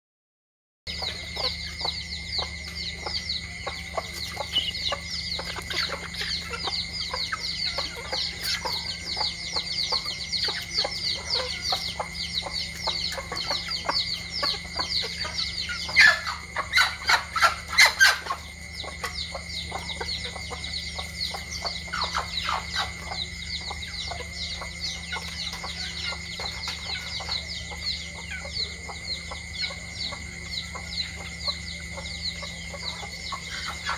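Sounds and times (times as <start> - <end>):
chicks peeping: 0.9 - 33.9
hens clucking: 0.9 - 33.9.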